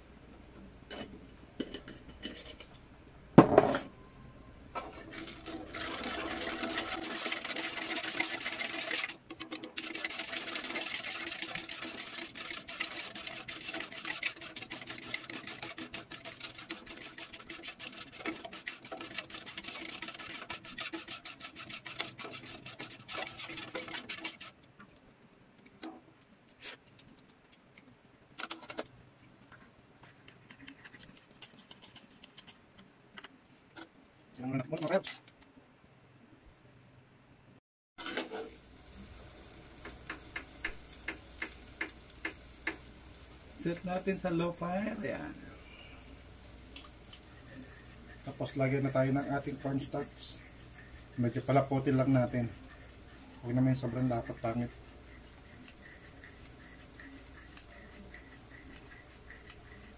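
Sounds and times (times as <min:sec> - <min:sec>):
metal spatula scraping pan: 0:04.8 - 0:24.6, 0:38.0 - 0:38.6, 0:47.2 - 0:59.9.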